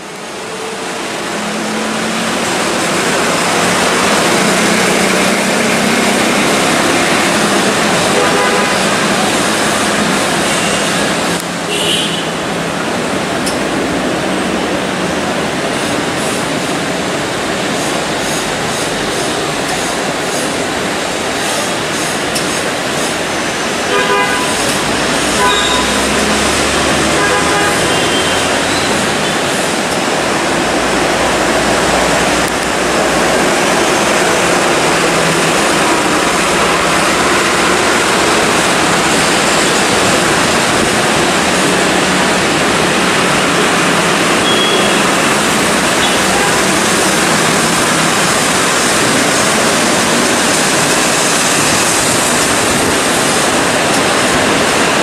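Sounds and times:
diesel locomotive engine running: 0.0s - 55.0s
steady rushing noise: 0.0s - 55.0s
train horn blasts: 8.1s - 9.1s, 23.9s - 26.4s, 27.1s - 28.5s.

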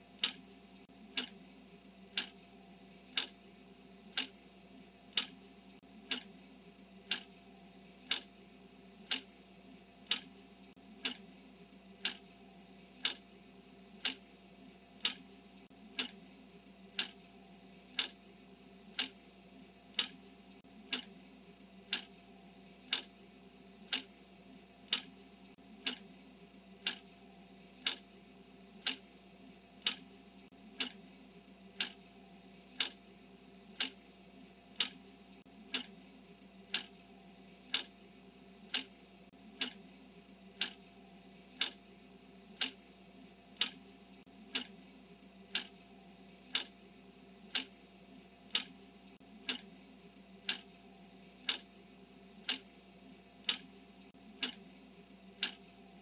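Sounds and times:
clock ticking: 0.1s - 0.5s, 1.1s - 1.4s, 2.1s - 2.4s, 3.1s - 3.4s, 4.1s - 4.5s, 5.1s - 6.4s, 7.0s - 7.4s, 8.0s - 8.3s, 9.0s - 9.4s, 10.0s - 10.4s, 11.0s - 11.3s, 12.0s - 12.3s, 13.0s - 13.3s, 14.0s - 14.4s, 15.0s - 16.3s, 16.9s - 17.2s, 17.9s - 18.2s, 18.9s - 19.2s, 19.9s - 21.2s, 21.8s - 22.2s, 22.8s - 23.1s, 23.8s - 24.2s, 24.8s - 26.1s, 26.8s - 27.1s, 27.8s - 28.1s, 28.8s - 29.2s, 29.8s - 31.1s, 31.7s - 32.0s, 32.7s - 33.0s, 33.7s - 34.1s, 34.7s - 36.0s, 36.6s - 38.0s, 38.6s - 39.9s, 40.5s - 40.8s, 41.5s - 41.9s, 42.5s - 42.9s, 43.5s - 44.8s, 45.5s - 46.8s, 47.4s - 47.8s, 48.4s - 49.8s, 50.4s - 50.8s, 51.4s - 51.8s, 52.4s - 54.7s, 55.3s - 56.0s.

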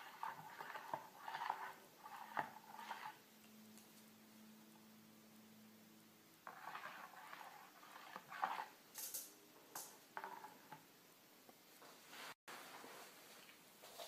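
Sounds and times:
spoon stirring and scraping bowl: 0.0s - 3.3s, 6.4s - 10.8s.

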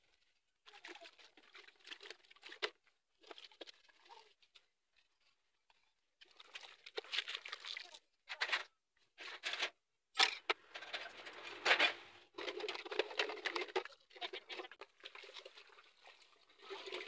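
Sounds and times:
water sloshing in basin: 0.2s - 8.0s, 12.4s - 17.0s.

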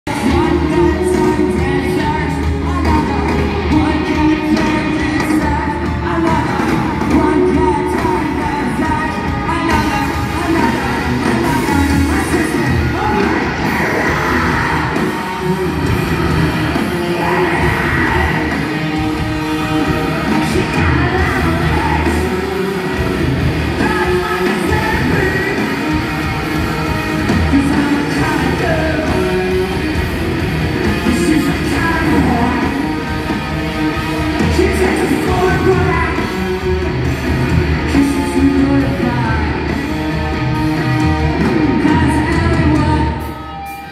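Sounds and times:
rock band playing loudly: 0.0s - 43.9s
person singing: 0.1s - 15.9s, 16.7s - 26.4s, 27.3s - 29.8s, 31.0s - 33.1s, 37.7s - 40.0s, 41.4s - 43.9s.

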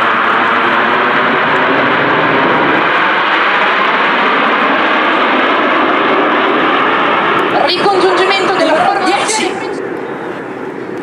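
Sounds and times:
jet planes flying overhead: 0.0s - 11.0s.

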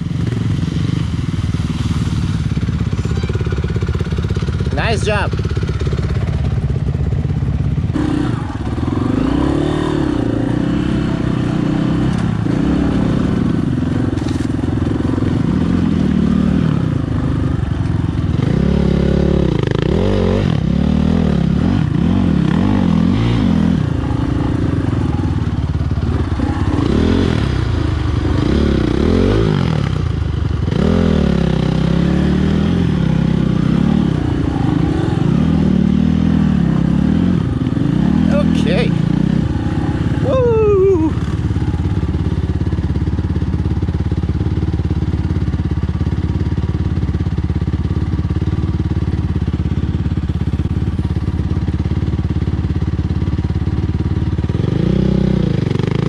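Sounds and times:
dirt bike engine revving: 0.0s - 43.2s.

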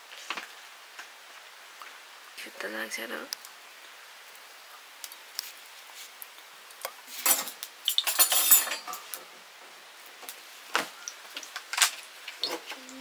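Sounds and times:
metal utensils clinking and scraping: 7.1s - 9.1s.

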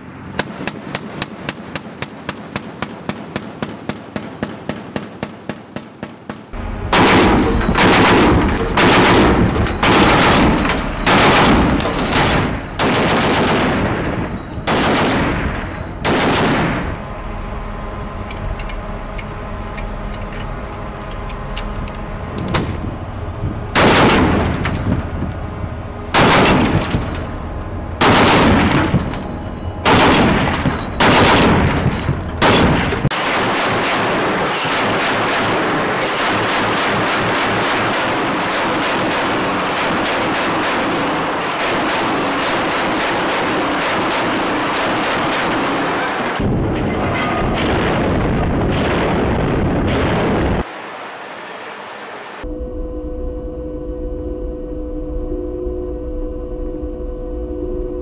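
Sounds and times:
machine gun firing: 0.4s - 17.1s, 23.8s - 25.3s, 26.1s - 27.4s, 28.0s - 46.4s.

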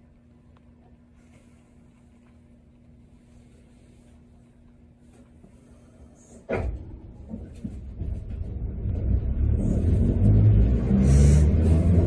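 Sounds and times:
tram rumble: 3.8s - 12.0s.

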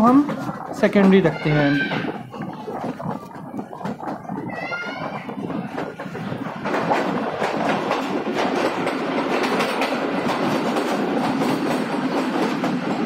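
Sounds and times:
train coaches rumbling: 0.0s - 13.0s
wheels clattering over rail joints: 3.2s - 13.0s.

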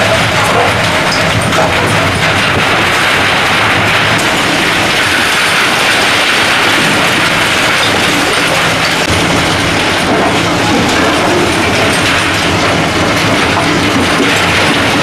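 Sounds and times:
rubble and scrap steel clattering: 0.0s - 15.0s.

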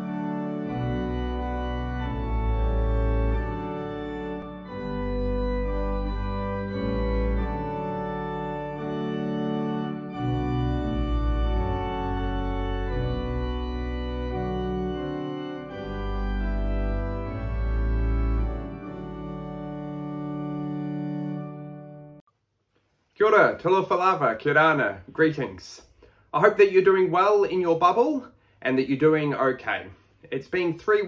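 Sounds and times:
organ chords: 0.0s - 22.2s.

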